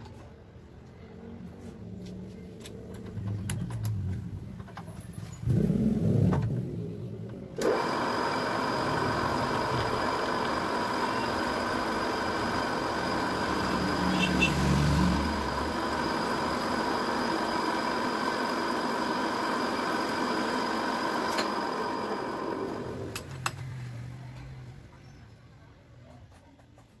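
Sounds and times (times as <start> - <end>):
vise clicking: 7.2 - 14.4, 15.1 - 23.7
drill bit whirring into workpiece: 7.6 - 23.2
drill press motor humming: 7.6 - 23.3
high steady tones: 8.5 - 19.8.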